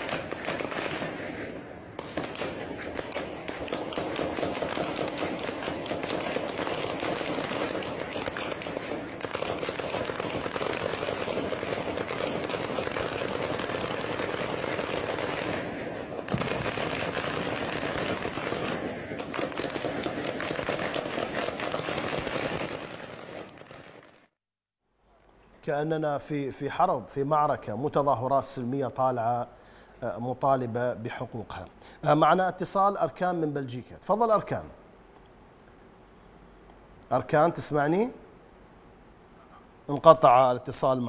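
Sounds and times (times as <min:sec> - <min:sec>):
heavy rapid gunfire: 0:00.0 - 0:23.2
sharp gunshot crack: 0:00.0 - 0:24.1.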